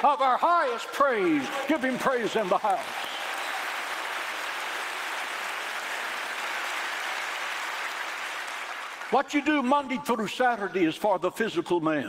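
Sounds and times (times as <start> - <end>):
crowd applauding: 0.0 - 9.4.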